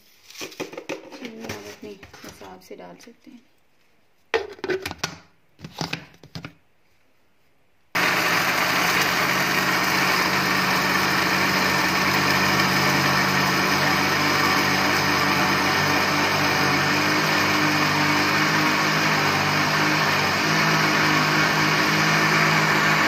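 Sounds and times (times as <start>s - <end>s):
electric blender running: 8.0s - 23.0s.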